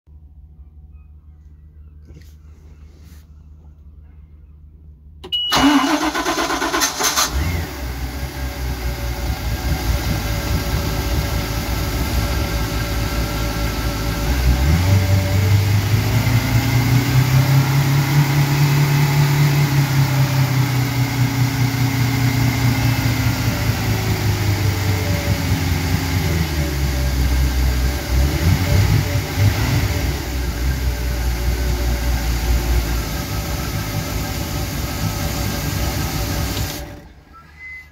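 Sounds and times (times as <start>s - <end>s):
boat engine starter cranking: 5.5s - 7.5s
boat engine idling and revving: 7.3s - 37.2s.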